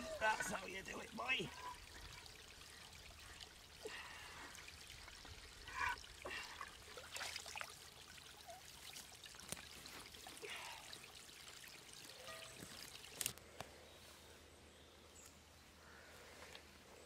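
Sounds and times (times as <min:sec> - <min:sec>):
stream water gurgling and splashing: 0:00.0 - 0:13.4.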